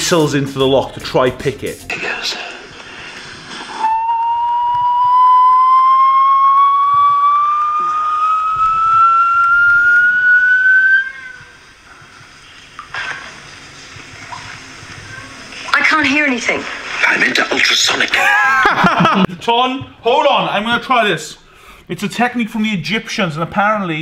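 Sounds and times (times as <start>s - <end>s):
man whistling rising note: 3.8s - 11.1s.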